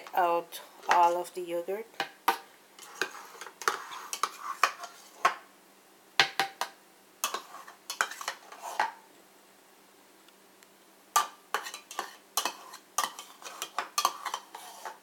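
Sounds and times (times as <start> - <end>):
spoon scraping plastic jar: 2.8 - 5.3, 11.6 - 15.0.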